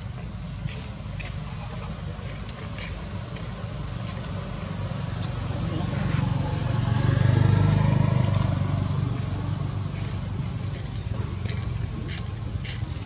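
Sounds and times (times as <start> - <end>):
vehicle engine passing by: 4.3 - 13.0.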